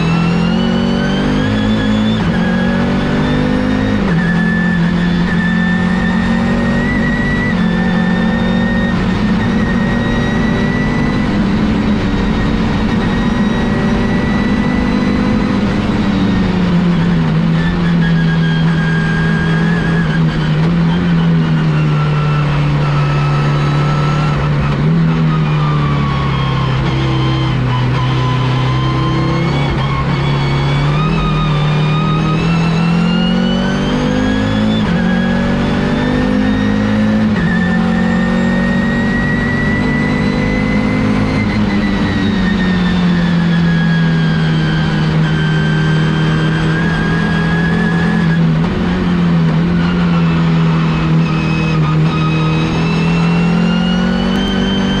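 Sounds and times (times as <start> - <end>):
high whine: 0.0 - 55.0
race car engine revving: 0.0 - 55.0.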